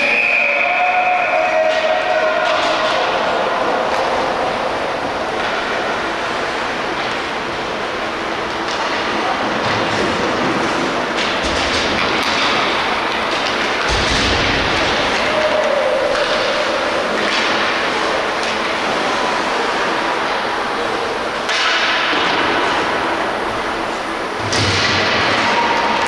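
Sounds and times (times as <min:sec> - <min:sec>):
hockey sticks and puck knocking: 0:01.6 - 0:04.3, 0:08.5 - 0:20.0, 0:21.4 - 0:23.1.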